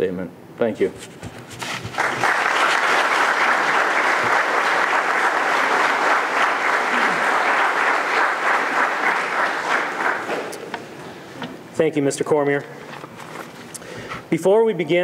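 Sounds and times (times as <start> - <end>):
audience applauding: 1.6 - 11.1.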